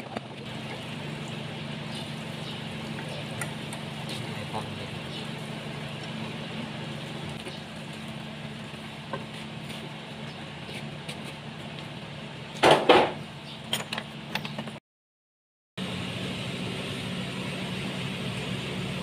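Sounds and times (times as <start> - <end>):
low machine hum: 0.4 - 12.6.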